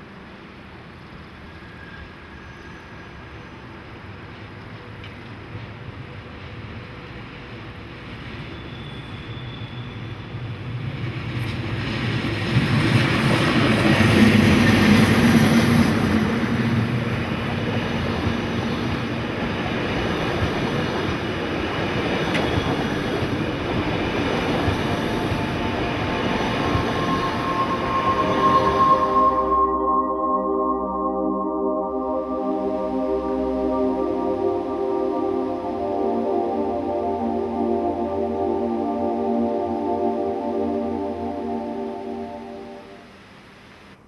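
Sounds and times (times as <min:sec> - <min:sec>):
electric train passing: 0:00.0 - 0:43.8
locomotive hum: 0:22.3 - 0:43.2.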